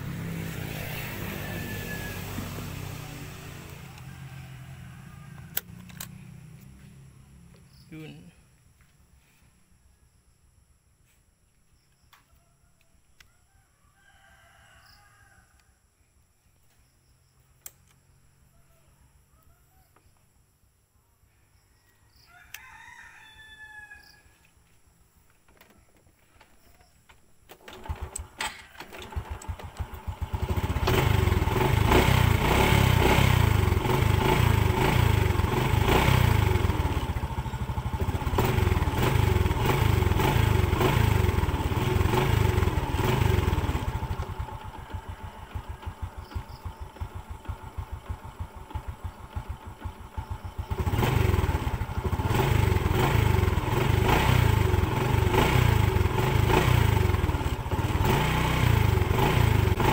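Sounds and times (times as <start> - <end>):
motorcycle engine running: 0.0 - 8.3, 29.0 - 59.9.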